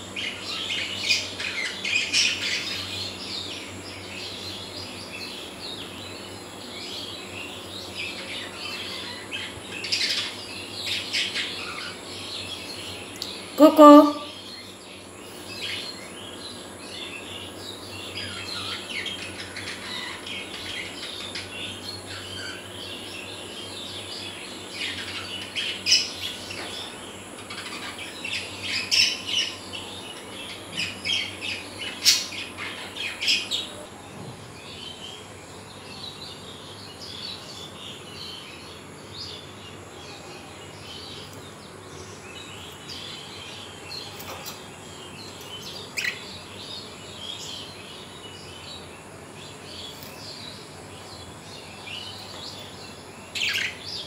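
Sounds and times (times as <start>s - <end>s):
budgerigars chattering and chirping: 53.3s - 54.0s.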